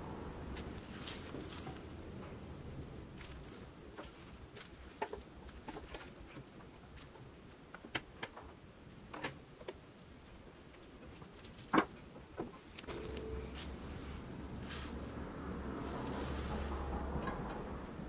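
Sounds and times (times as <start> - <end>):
low steady hum: 12.1 - 18.0.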